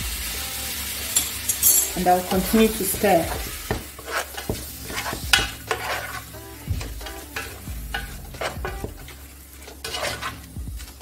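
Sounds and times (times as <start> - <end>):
meat sizzling in oil: 0.0 - 11.0
spoon scraping metal pot: 3.1 - 6.3, 7.0 - 10.5.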